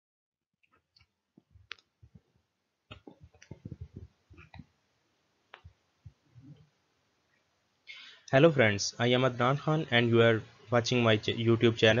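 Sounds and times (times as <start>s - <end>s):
faint clicks and soft knocks: 0.6s - 4.8s, 5.4s - 7.5s.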